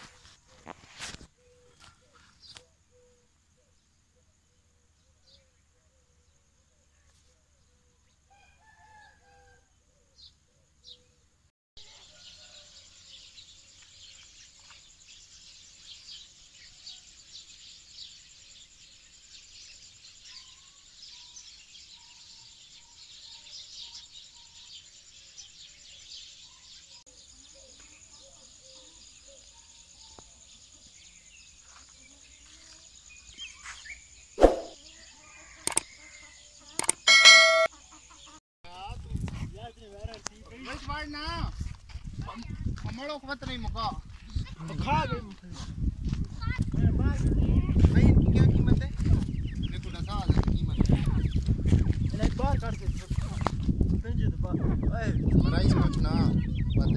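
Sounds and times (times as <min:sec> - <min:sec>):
high-pitched chirping chorus: 0:36.7 - 0:38.4
chicken calling: 0:36.8 - 0:38.3.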